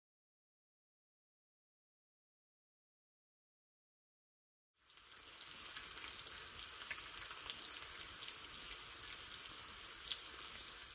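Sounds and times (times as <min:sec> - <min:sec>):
bacon sizzling with pops: 0:04.8 - 0:10.9.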